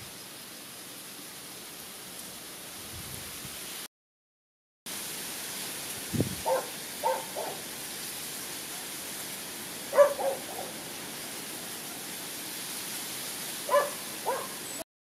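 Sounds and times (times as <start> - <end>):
steady hiss: 4.9 - 14.8
dog barking in short yaps: 6.4 - 7.6, 9.9 - 10.8, 13.7 - 14.6.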